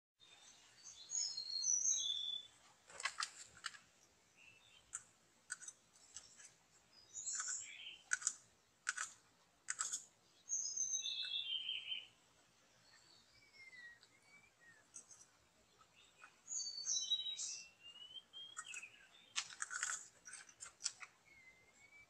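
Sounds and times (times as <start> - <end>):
bird whistled song phrases: 0.8 - 2.5, 10.5 - 12.1, 12.9 - 14.9, 16.5 - 19.3, 21.2 - 22.0
bird sharp clicking notes: 7.2 - 10.1, 18.4 - 21.1.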